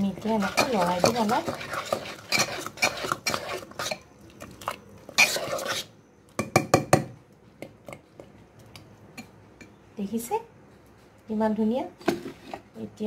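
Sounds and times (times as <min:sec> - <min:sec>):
metal spoon scraping pot: 0:00.0 - 0:05.9.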